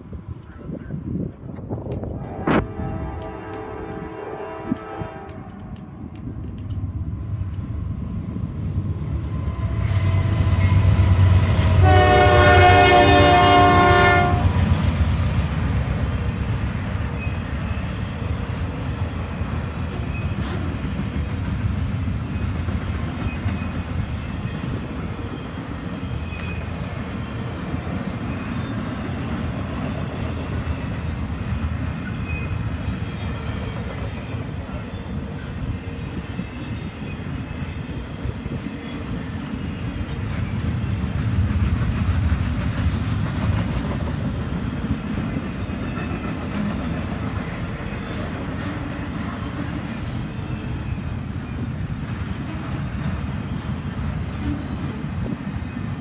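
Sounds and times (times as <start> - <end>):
train cars rolling past: 0.0 - 56.0
locomotive horn blast: 2.2 - 5.6, 11.6 - 14.6.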